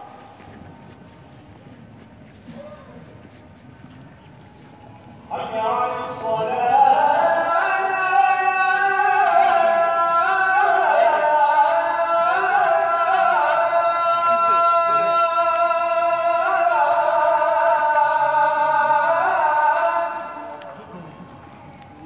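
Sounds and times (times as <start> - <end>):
man chanting call to prayer: 5.3 - 21.8.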